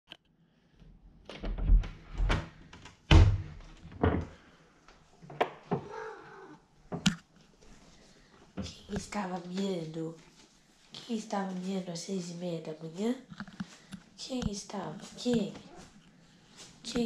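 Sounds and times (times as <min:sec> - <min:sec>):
door thumps and knocks: 0:01.4 - 0:02.5, 0:03.1 - 0:04.3
cat meowing: 0:05.8 - 0:06.6.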